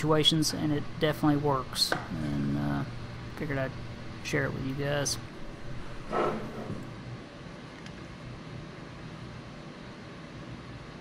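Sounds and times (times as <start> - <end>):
workshop background noise: 0.0 - 7.0.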